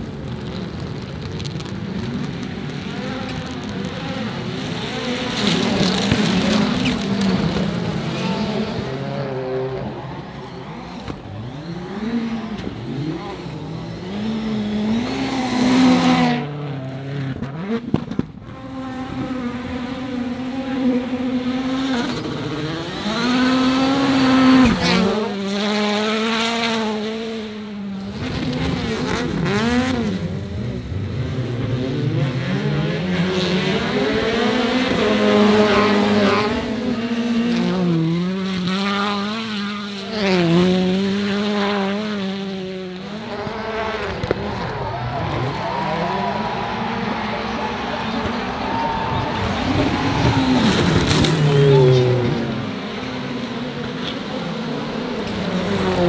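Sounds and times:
race car engines revving: 0.0 - 56.0.

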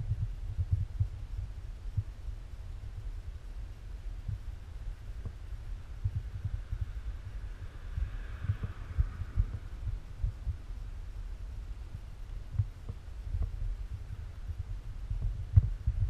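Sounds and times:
wind buffeting microphone: 5.2 - 16.0
car passing: 6.4 - 10.7.

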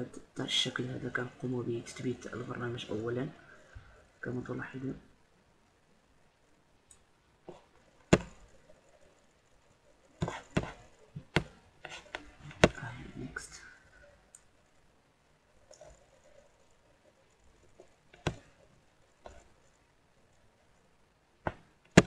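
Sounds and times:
computer mouse clicking: 15.6 - 16.6.

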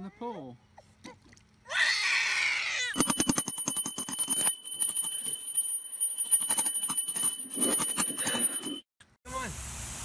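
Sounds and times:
small bell jingling: 2.9 - 8.8
steady high ring: 2.9 - 8.9.

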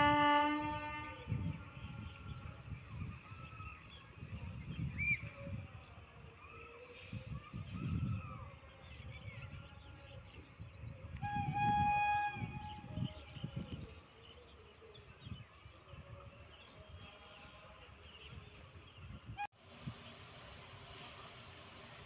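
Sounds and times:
locomotive horn: 0.0 - 1.5.

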